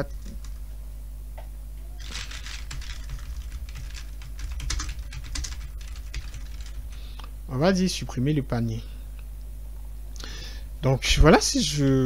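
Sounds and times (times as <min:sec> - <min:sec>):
faint low hum: 0:00.0 - 0:12.0
typing on keyboard: 0:02.0 - 0:07.1.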